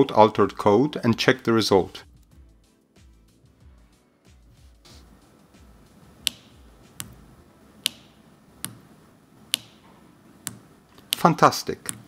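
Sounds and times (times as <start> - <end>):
pushbutton switch clicking: 6.2 - 7.2, 7.8 - 8.9, 9.5 - 12.0.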